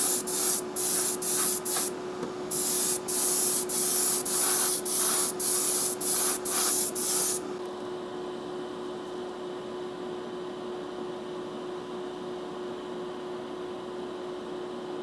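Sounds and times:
airbrush hissing bursts: 0.0s - 1.9s, 2.5s - 7.5s
steady hum: 0.0s - 7.6s.

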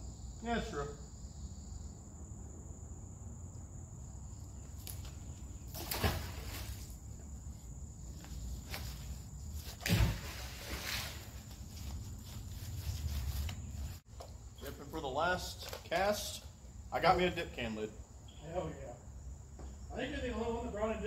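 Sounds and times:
high insect drone: 0.0s - 21.0s
scuffs or rustles: 4.7s - 14.0s.

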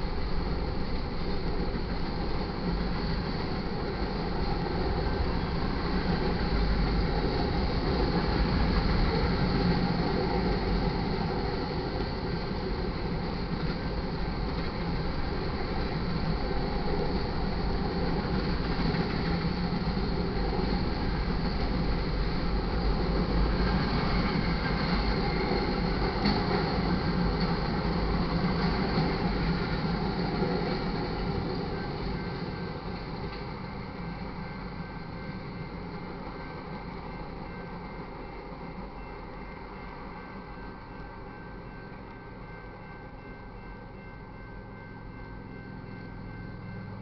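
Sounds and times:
freight train wheels rumbling and clattering: 0.0s - 47.0s.

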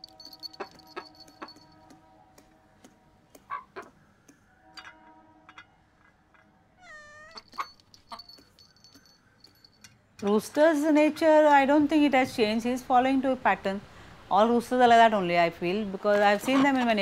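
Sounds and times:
rooster pecking metal bowl: 0.0s - 2.0s, 7.3s - 9.9s
cat meowing: 6.8s - 7.5s.

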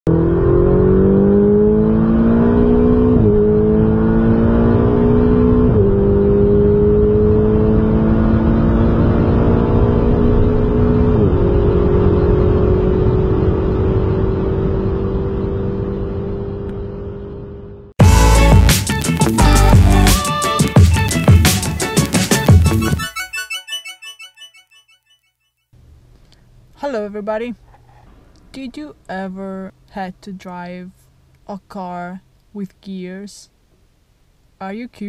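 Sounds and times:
car engine accelerating: 0.1s - 20.2s.

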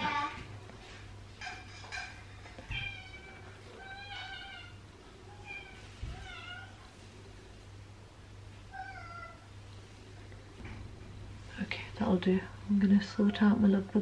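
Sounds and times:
cat meowing faintly: 2.7s - 6.9s, 8.7s - 9.5s.

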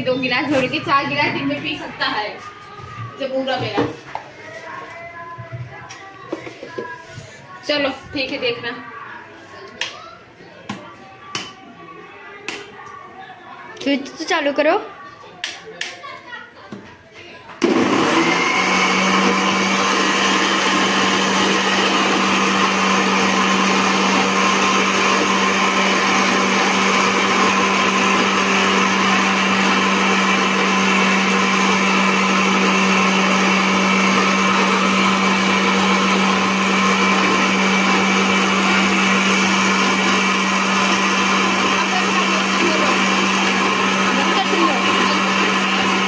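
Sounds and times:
mixer grinder motor whining: 17.6s - 46.0s.

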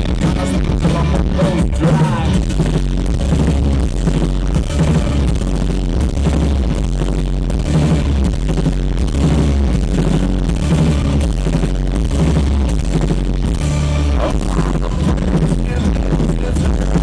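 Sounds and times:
booming bass: 0.0s - 17.0s
rock band playing live: 0.0s - 17.0s.

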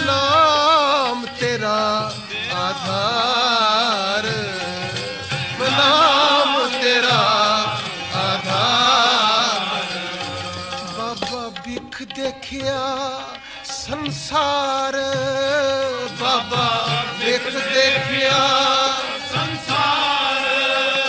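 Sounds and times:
rhythmic accompaniment: 0.0s - 21.0s
singers chanting a melodic line: 15.8s - 21.0s.

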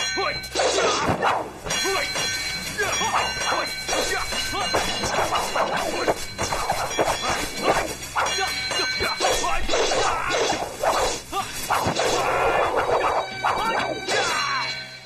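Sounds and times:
background music: 0.0s - 15.0s
rapid whooshes of swings: 0.4s - 14.2s
sharp whacks of blows: 0.6s - 1.4s, 3.9s - 13.1s.

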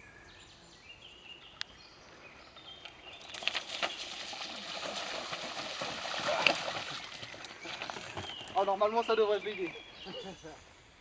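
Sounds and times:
birds chirping faintly: 0.0s - 11.0s
bike tyres splashing through stream: 3.2s - 8.8s.

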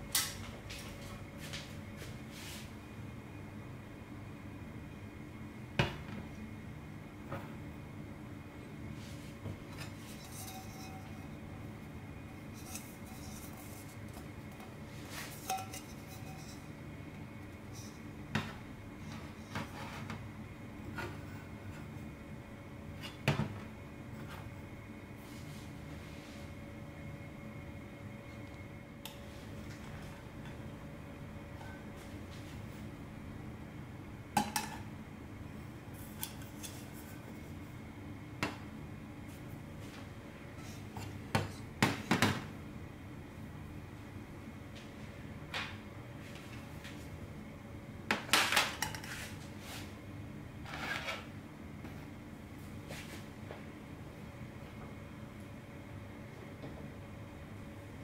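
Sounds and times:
faint steady hum: 0.0s - 58.0s
metal cup clinking on metal table: 15.4s - 16.6s.

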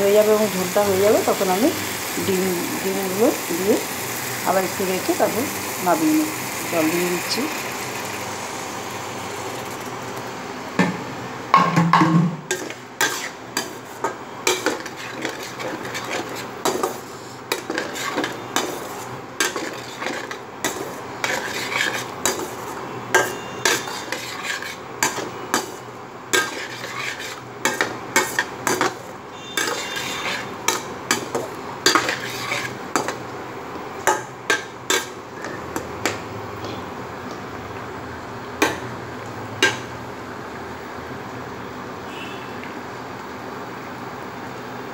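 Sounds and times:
metal spatula scraping a pan: 12.5s - 33.2s.

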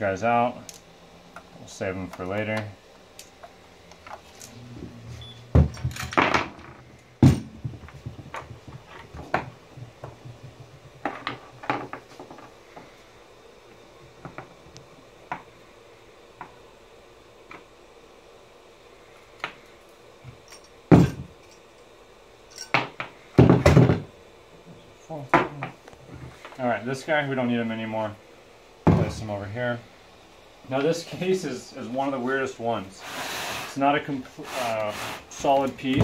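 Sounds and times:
knocks on wooden workbench: 7.2s - 12.0s, 23.4s - 24.1s, 28.9s - 29.1s.

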